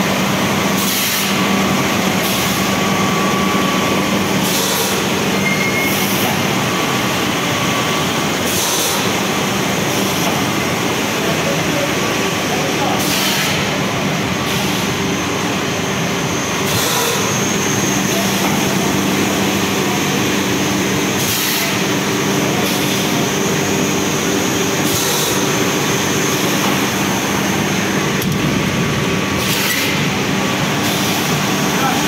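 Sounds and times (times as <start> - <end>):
steady machinery noise: 0.0 - 32.0.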